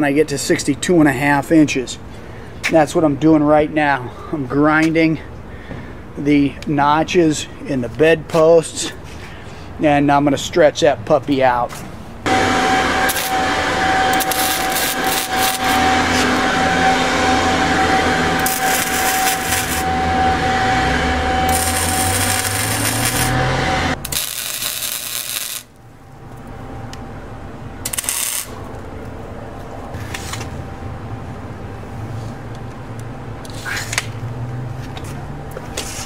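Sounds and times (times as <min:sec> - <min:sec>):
loud hiss: 0:12.3 - 0:16.4
welding bursts: 0:12.3 - 0:16.4, 0:18.0 - 0:19.9, 0:21.4 - 0:25.8, 0:27.8 - 0:28.6
angle grinder on steel: 0:12.3 - 0:25.7, 0:27.9 - 0:28.6.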